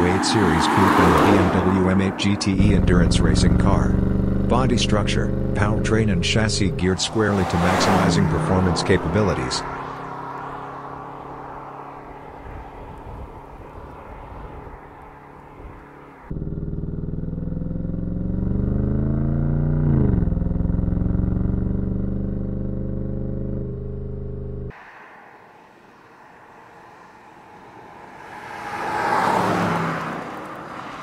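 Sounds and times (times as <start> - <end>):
road noise: 0.0 - 31.0
loud engine accelerating: 0.7 - 12.4, 15.1 - 24.8
car engine running: 0.7 - 13.3, 14.9 - 24.8.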